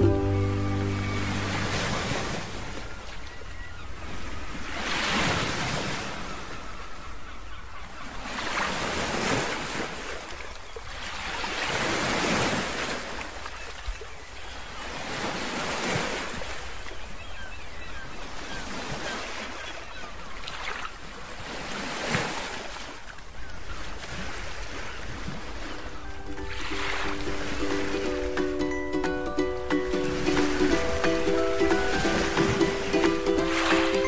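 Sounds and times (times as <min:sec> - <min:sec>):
waves washing in: 0:00.0 - 0:06.6, 0:23.8 - 0:34.0.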